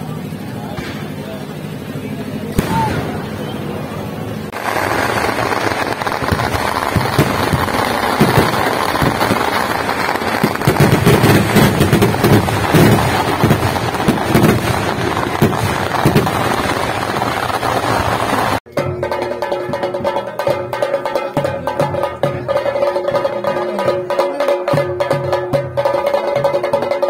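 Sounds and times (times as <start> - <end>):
fireworks bangs and crackling: 0.1 - 18.7.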